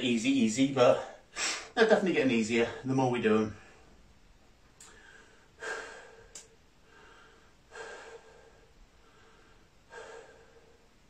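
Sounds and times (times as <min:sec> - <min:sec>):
man breathing hard: 0:01.1 - 0:01.8, 0:04.8 - 0:11.0.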